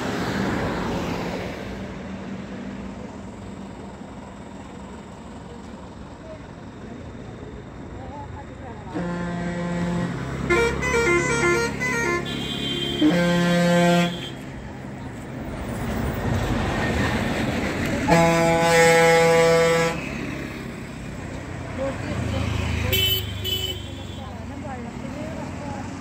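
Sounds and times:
vehicle horns honking: 8.9 - 14.5, 18.0 - 20.2, 22.9 - 24.4.

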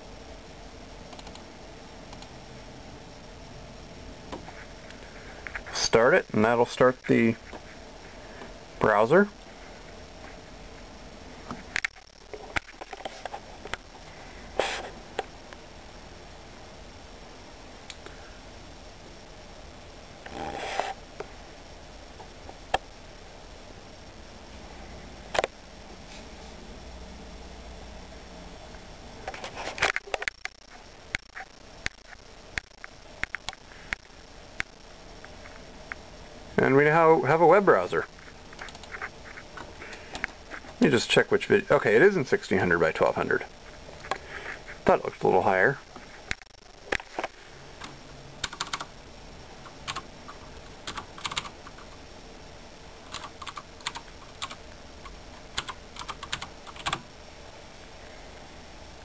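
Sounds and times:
keyboard typing clicks: 1.1 - 1.4
sharp clicks: 1.1 - 1.5, 2.1 - 2.4, 29.8 - 36.0, 38.5 - 40.7.

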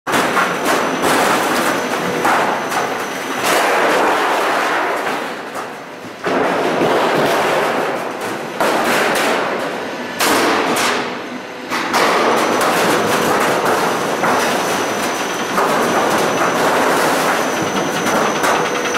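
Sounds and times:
roll forming machine rattling: 11.8 - 18.9.

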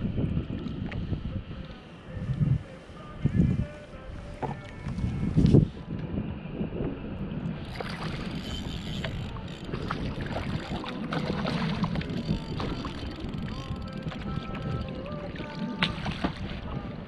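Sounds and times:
wind buffeting microphone: 0.0 - 17.0
fish splashing in water: 9.8 - 13.2.

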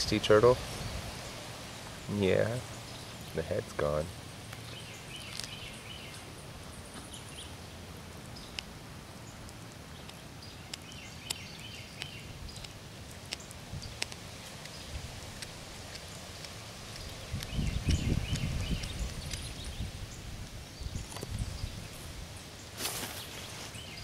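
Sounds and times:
outdoor background: 0.0 - 24.0
cat chewing bones: 12.0 - 19.7.

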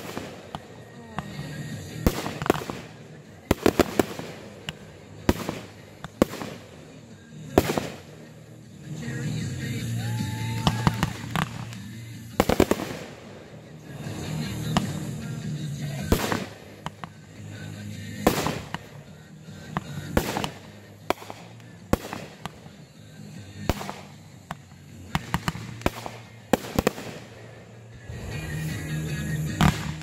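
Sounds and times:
fireworks bursting overhead: 0.0 - 30.0.

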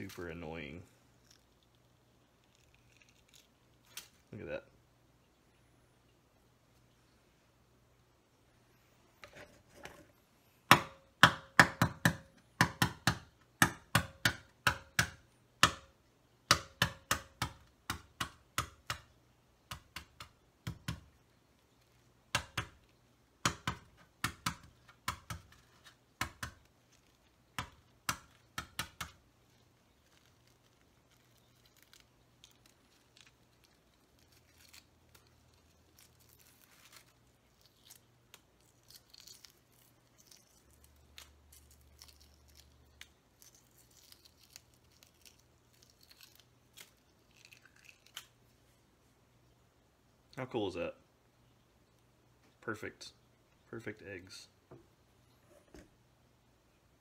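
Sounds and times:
eggshell peeling scratching: 0.0 - 4.3, 23.7 - 48.7
eggshells cracked by tapping: 16.5 - 21.2, 22.3 - 48.4.

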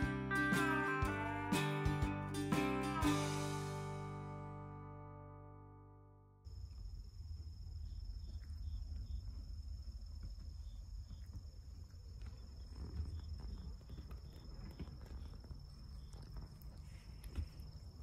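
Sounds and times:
insects trilling: 6.5 - 18.0.

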